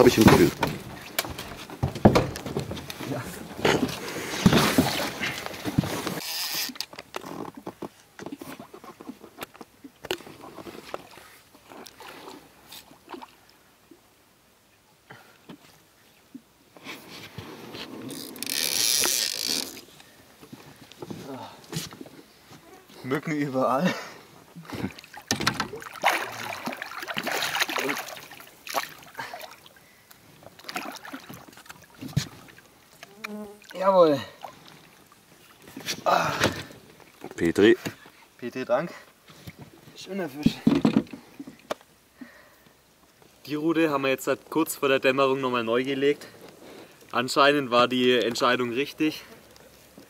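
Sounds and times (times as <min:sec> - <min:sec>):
fishing gear clicking and rustling: 0:00.0 - 0:12.0, 0:16.9 - 0:23.0
fish thrashing and splashing: 0:24.8 - 0:29.8, 0:30.4 - 0:33.8.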